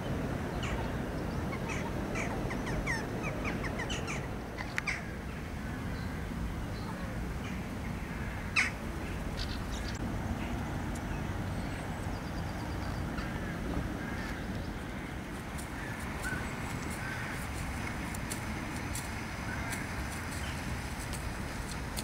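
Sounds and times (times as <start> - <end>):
steady low rumble: 0.0 - 22.0
jackdaw calls: 1.5 - 5.2, 7.4 - 10.0, 12.8 - 22.0.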